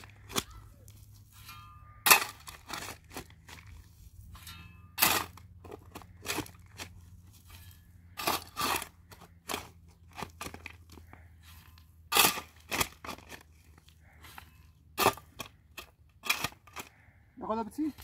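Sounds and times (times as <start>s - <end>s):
crunches and scrapes: 0.0s - 17.1s.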